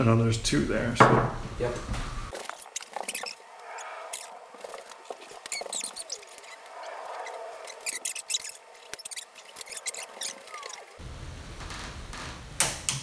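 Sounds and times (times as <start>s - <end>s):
plastic restraints clicking and scratching: 4.1s - 11.0s.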